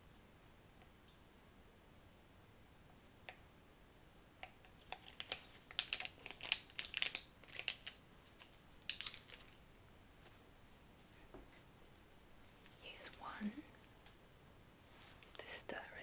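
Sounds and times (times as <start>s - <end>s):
packet crinkling: 4.8s - 9.6s.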